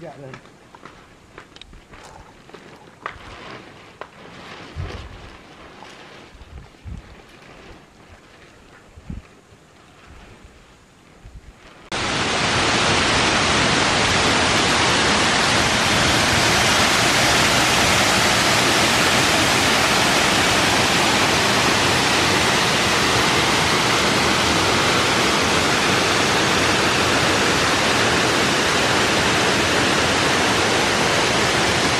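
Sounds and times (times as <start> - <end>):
waterfall rushing: 11.9 - 31.9.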